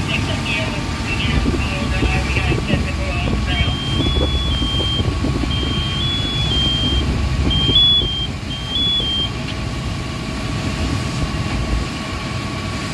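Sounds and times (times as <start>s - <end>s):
fire engine rumbling: 0.0s - 12.9s
thin high hum: 0.1s - 10.0s
two-tone electronic beep: 3.4s - 9.4s.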